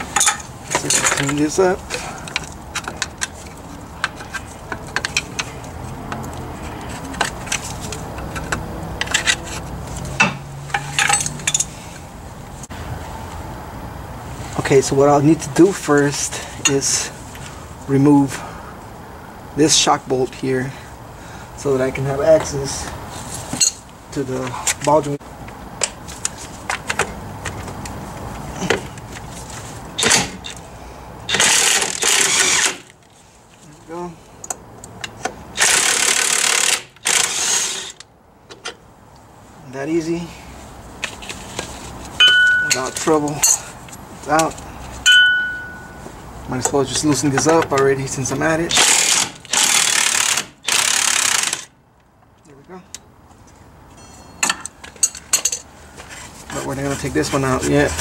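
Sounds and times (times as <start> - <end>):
hand tools clinking on metal: 0.1 - 3.3, 10.2 - 11.7, 42.2 - 43.7, 44.4 - 47.9, 53.9 - 55.7
impact wrench hammering: 42.2 - 43.0, 45.1 - 46.0.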